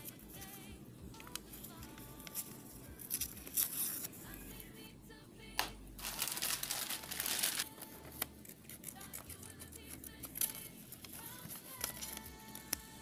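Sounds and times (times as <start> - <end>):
faint background music: 0.0 - 13.0
paper rustling and crinkling: 6.0 - 9.3.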